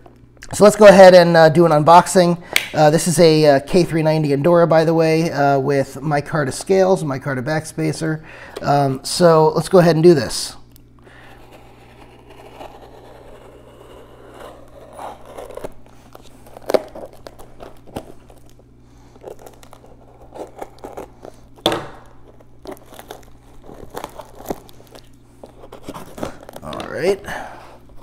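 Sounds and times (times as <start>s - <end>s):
tape and plastic wrap tearing: 11.6s - 27.2s.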